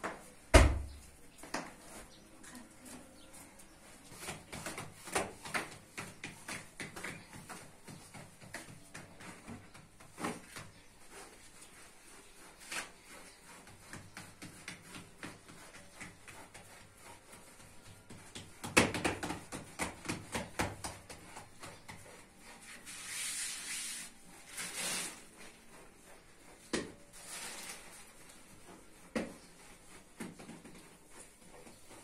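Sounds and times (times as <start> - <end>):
dough rubbing and swishing: 0.1 - 32.0
soft pats on dough: 2.8 - 22.8, 27.9 - 32.0.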